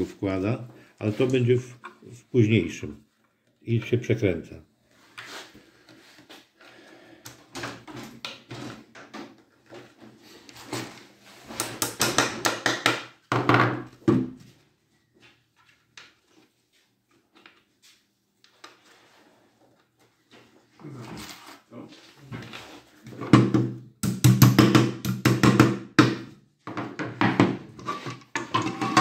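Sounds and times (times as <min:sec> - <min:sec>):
hammer knocking wooden dowels: 0:11.6 - 0:14.3, 0:23.3 - 0:27.7.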